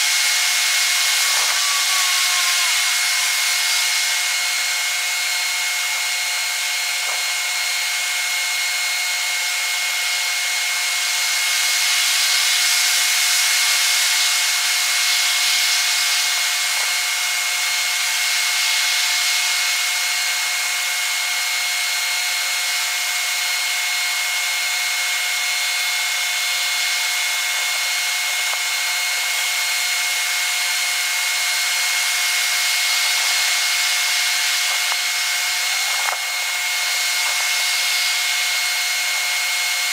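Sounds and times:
high-pitched hiss: 0:00.0 - 0:06.7, 0:11.0 - 0:20.1, 0:25.1 - 0:39.9
thin whines: 0:00.0 - 0:39.9.

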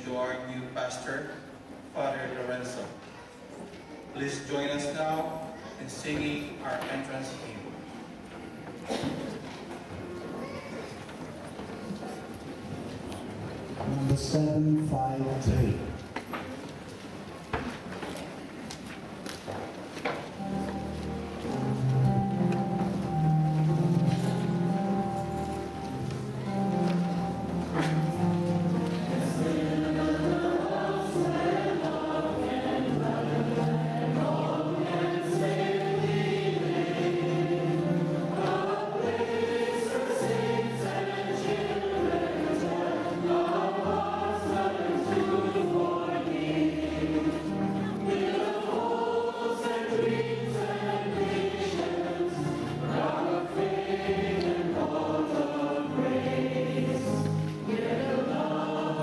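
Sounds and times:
held bass notes accompaniment: 0:20.4 - 0:39.7
choir and congregation singing hymn: 0:20.4 - 0:59.0.

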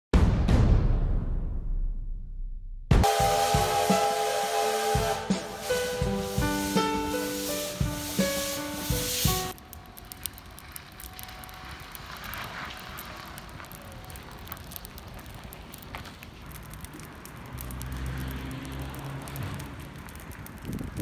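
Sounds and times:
burning tyre crackling and popping: 0:04.8 - 0:21.0.

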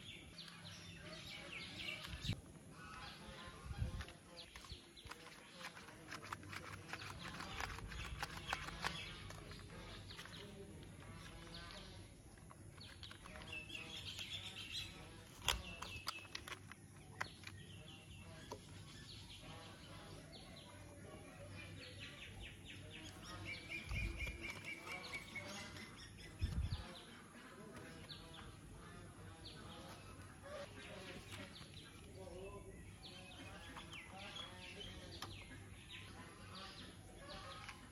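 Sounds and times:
plastic toy parts clicking: 0:04.0 - 0:11.7, 0:12.4 - 0:17.7.

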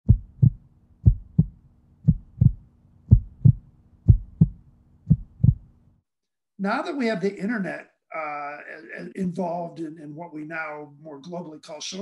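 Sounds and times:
heartbeat double thump: 0:00.0 - 0:05.7
faint low hum: 0:00.1 - 0:06.0.

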